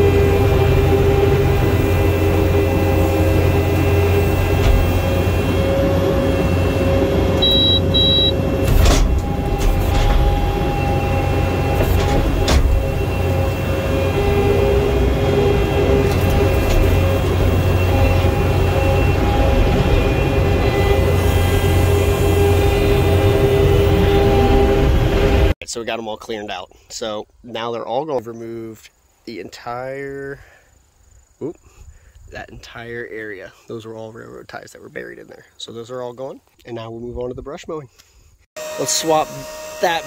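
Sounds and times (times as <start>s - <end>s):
diesel engine running under load: 0.0s - 25.5s
steady whining tones: 0.0s - 25.6s, 38.6s - 40.0s
brief high beeps: 7.4s - 8.4s.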